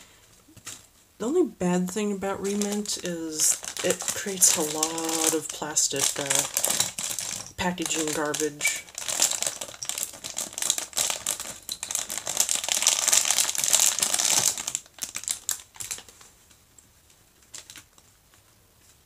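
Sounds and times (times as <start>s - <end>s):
plastic bags crinkling: 1.9s - 18.2s.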